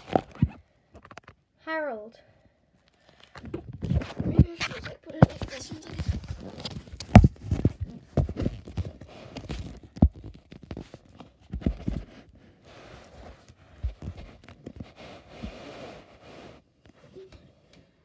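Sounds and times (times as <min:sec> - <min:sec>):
dull thumps and knocks: 0:03.4 - 0:12.1.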